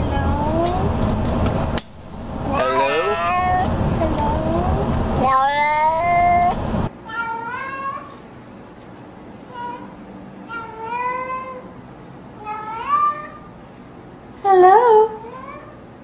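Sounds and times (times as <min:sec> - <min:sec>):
cats meowing: 0:02.5 - 0:08.2, 0:12.4 - 0:13.5.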